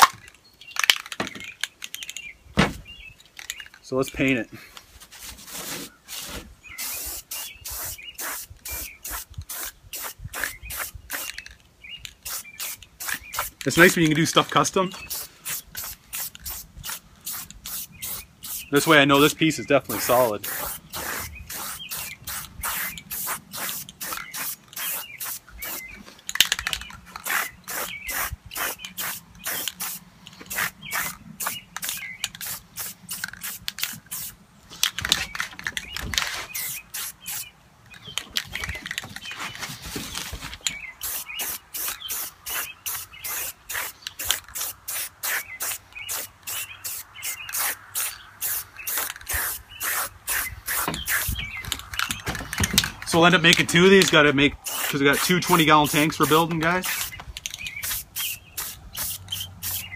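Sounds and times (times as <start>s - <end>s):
spray-paint can hissing: 6.8s - 11.3s, 12.2s - 13.6s, 15.1s - 18.8s, 19.9s - 25.8s, 27.2s - 34.4s, 36.4s - 37.5s, 41.0s - 51.4s, 54.6s - 57.1s, 57.8s - 59.9s.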